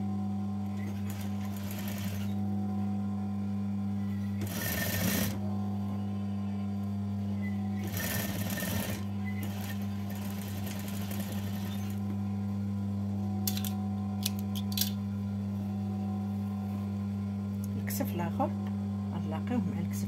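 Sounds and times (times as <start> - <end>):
steady low hum: 0.0 - 20.0
sewing machine stitching: 4.4 - 5.4, 7.8 - 12.0.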